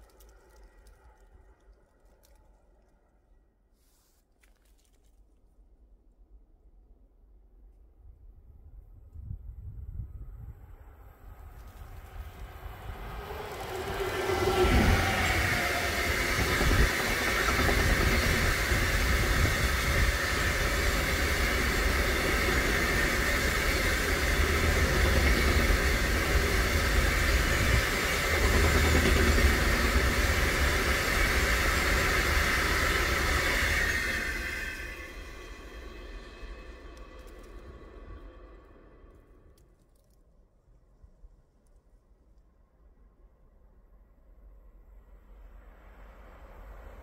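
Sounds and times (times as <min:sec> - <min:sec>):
locomotive passing: 0:10.6 - 0:39.5.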